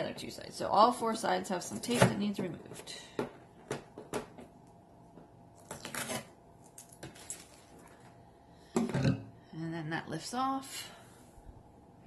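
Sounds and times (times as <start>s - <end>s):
packing tape peeling: 5.6s - 7.6s.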